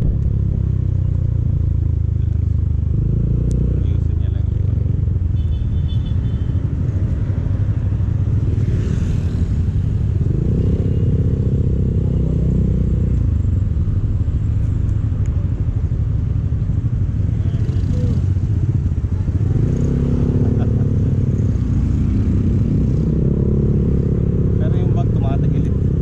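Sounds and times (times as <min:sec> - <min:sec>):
heavy low rumble: 0:00.0 - 0:02.6.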